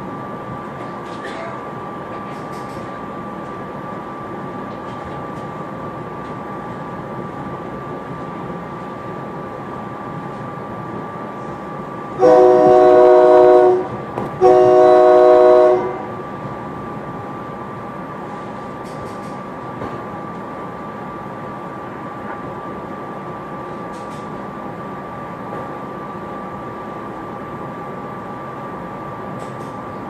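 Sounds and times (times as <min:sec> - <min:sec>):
train running noise with whine: 0:00.0 - 0:30.0
train horn blasts: 0:12.2 - 0:16.2.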